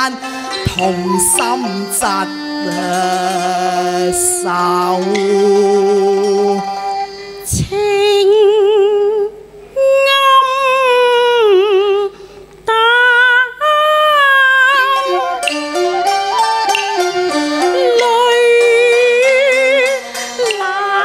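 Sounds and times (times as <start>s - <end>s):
instrumental accompaniment: 0.0s - 8.3s, 14.5s - 21.0s
woman singing opera: 0.0s - 21.0s.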